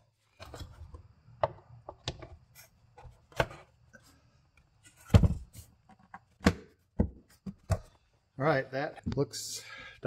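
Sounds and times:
plastic clicks and knocks: 1.4 - 2.3.

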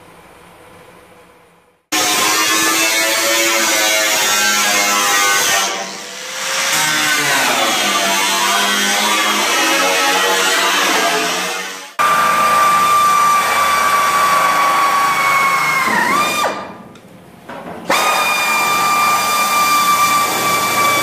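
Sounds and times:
pneumatic cut-off tool whining: 17.9 - 21.0.

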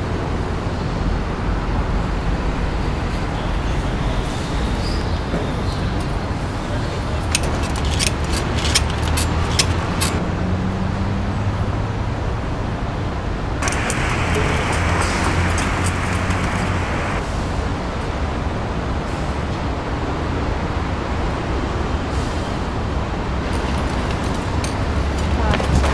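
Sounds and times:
traffic rumble: 0.0 - 25.9
sharp clicks: 7.3 - 10.2.

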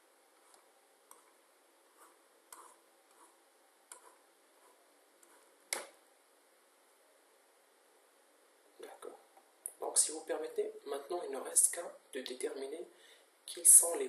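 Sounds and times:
computer mouse clicks: 0.4 - 1.4, 2.0 - 3.3, 3.9 - 6.0.

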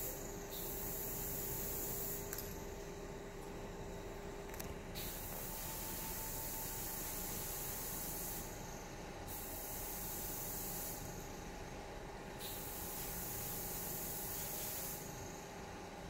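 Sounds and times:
spraying air hiss: 0.0 - 2.2, 5.0 - 11.3, 12.4 - 15.4
faint steady hum: 0.0 - 16.0.

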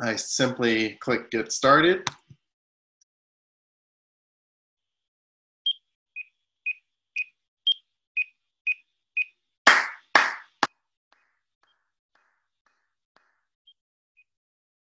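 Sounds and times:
hand claps: 9.7 - 10.7.

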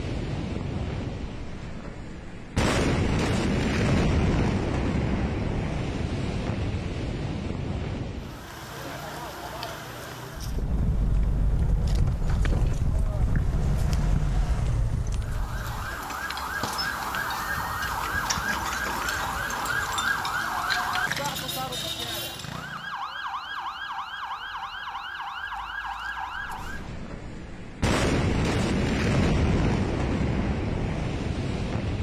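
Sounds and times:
emergency sirens yelping: 15.2 - 26.9.

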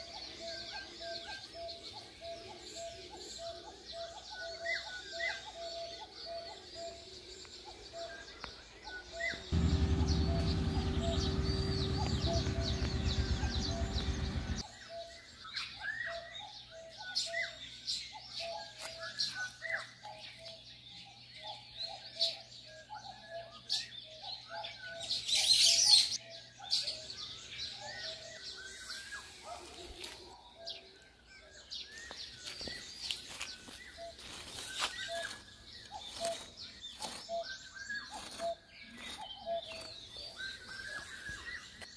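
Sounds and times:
small birds chirping: 0.0 - 41.9
loud steady low hum: 9.6 - 14.6.

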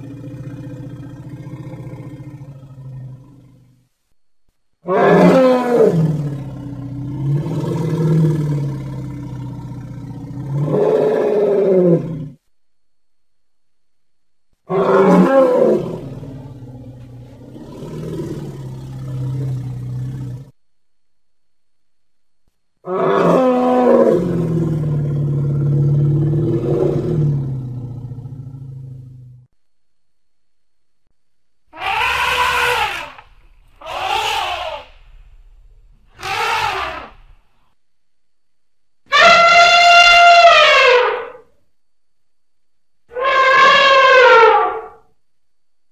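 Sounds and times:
imitation mammoth bellow: 4.8 - 12.4, 14.7 - 20.5, 22.8 - 29.5, 31.8 - 37.4, 39.1 - 41.5, 43.1 - 45.0.

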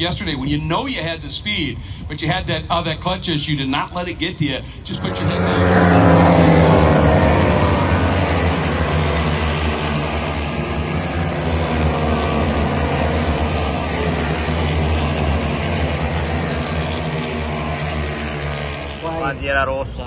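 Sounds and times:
motorcycle passing by: 4.9 - 19.7
racing motorcycle engines at high revs: 4.9 - 20.0.

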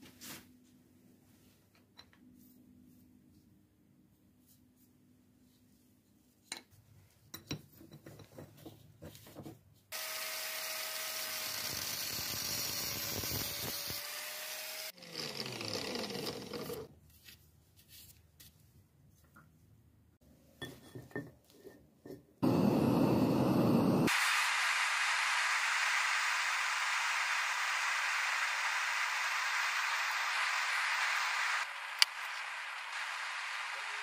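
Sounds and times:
angle grinder cutting metal: 10.0 - 16.9
brushing sounds: 17.0 - 18.8.

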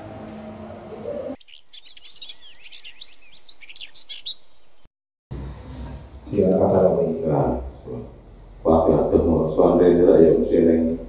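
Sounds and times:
small birds chirping: 1.1 - 4.9.

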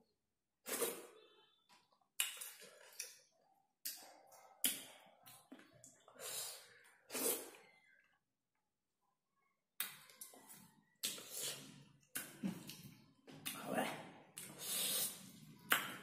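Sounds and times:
person chewing and breathing: 0.7 - 3.2, 3.9 - 8.1, 14.3 - 15.8.

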